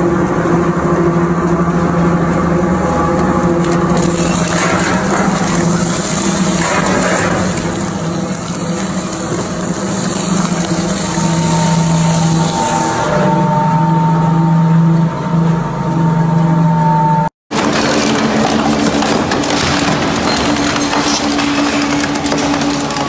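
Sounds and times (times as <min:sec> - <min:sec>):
items rattling and crunching: 0:17.5 - 0:23.0
shredder motor hum: 0:17.5 - 0:23.0.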